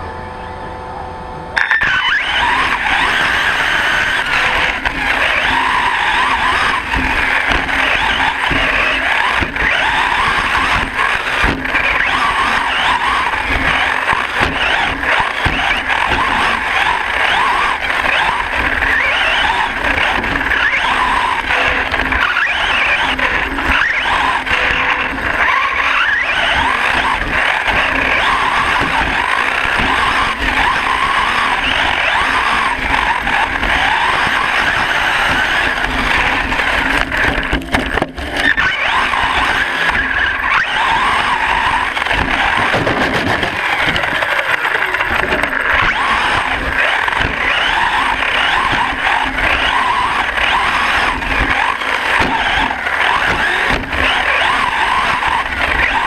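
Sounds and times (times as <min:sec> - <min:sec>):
electric motor whining: 0:00.0 - 0:56.0
toy truck rattling: 0:01.6 - 0:56.0
knocks from bumpy track: 0:04.3 - 0:56.0.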